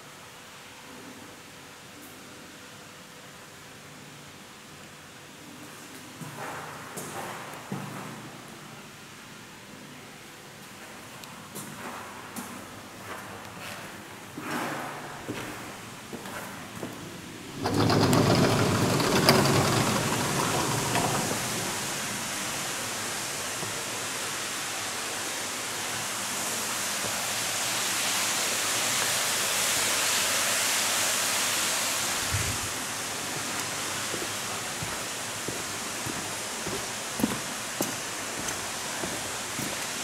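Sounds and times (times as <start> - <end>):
air rushing through tunnel: 17.5 - 23.4, 31.9 - 33.2
door clatter: 17.6 - 22.2.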